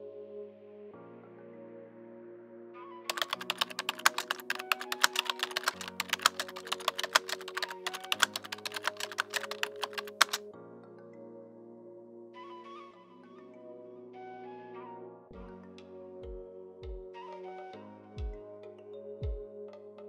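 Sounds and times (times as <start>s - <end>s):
soft background music: 0.0s - 20.0s
keyboard typing clicks: 3.1s - 10.4s.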